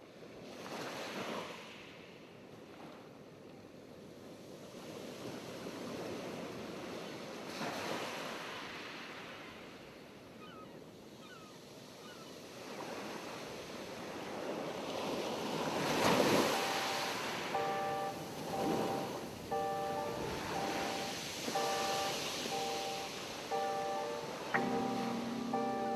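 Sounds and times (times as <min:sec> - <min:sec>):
ocean surf washing onto beach: 0:12.7 - 0:25.9
faint high chirps: 0:16.5 - 0:25.9.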